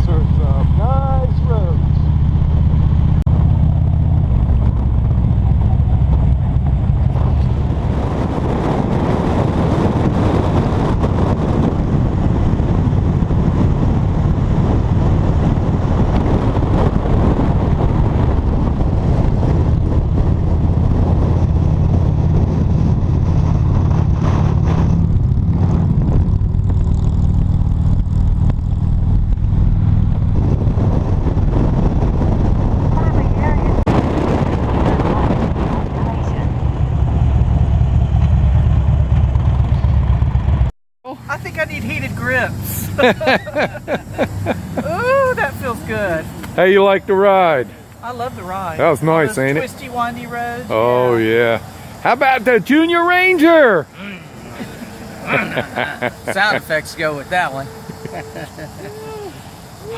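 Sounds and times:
motorcycle engine running: 0.0s - 45.2s
wind and road noise: 0.0s - 59.9s.

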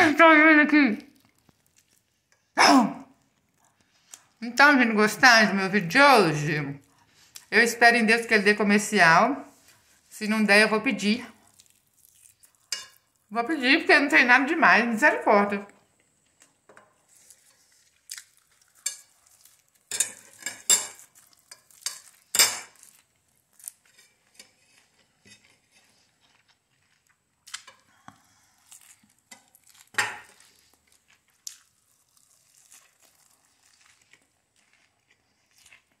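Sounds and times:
lettuce being chewed: 1.0s - 2.4s, 3.1s - 4.4s, 11.4s - 13.3s, 16.2s - 36.0s.

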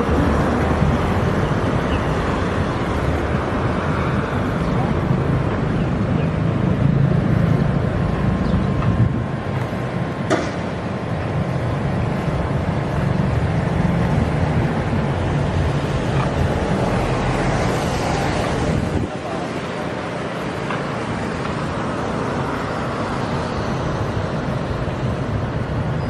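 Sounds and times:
wind noise on microphone: 0.0s - 9.9s, 11.3s - 19.2s.

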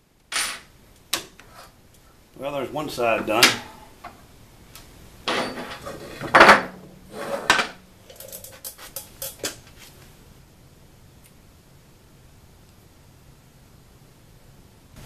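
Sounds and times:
metal tools scraping and clanking: 5.3s - 9.6s.

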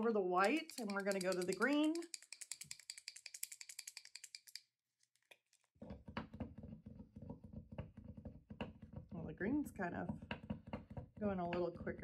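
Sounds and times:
paint marker ball rattling: 0.4s - 9.1s.

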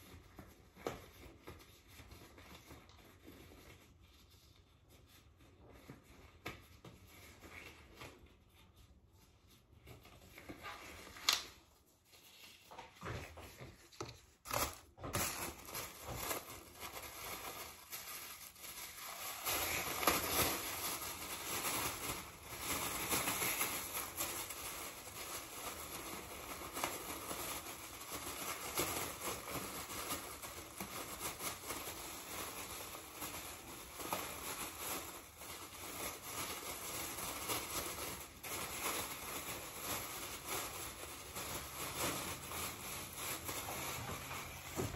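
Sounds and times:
plastic crinkling and rustling: 0.0s - 44.9s.

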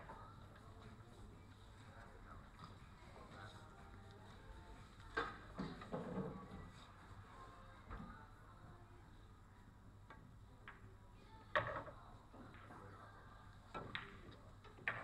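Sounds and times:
pool balls clacking: 13.8s - 15.0s.

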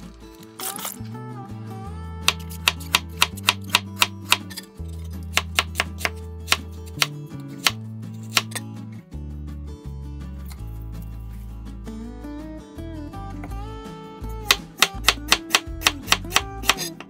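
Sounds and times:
background music: 0.0s - 17.0s
knife chopping on wooden board: 2.3s - 4.5s, 5.3s - 8.6s, 14.5s - 17.0s.

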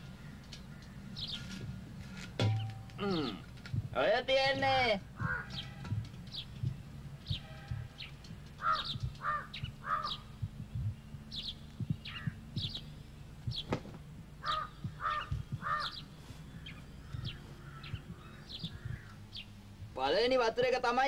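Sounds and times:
crows cawing: 0.0s - 1.3s, 4.7s - 6.2s, 7.4s - 10.4s, 14.4s - 19.4s
small birds chirping: 0.0s - 21.0s
steady low hum: 0.0s - 21.0s.

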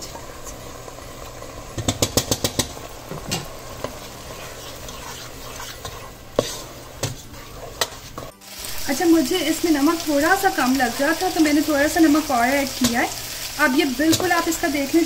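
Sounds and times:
sauce sizzling: 0.0s - 15.0s
utensils knocking against pot: 1.8s - 4.0s.

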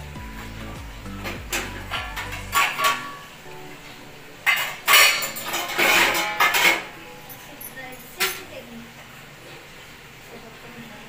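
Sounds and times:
metal pots clinking and clattering: 1.2s - 3.4s, 4.4s - 8.6s.

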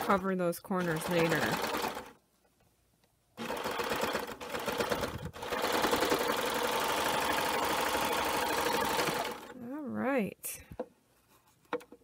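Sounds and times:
serger sewing machine stitching: 0.0s - 2.2s, 3.4s - 9.6s.

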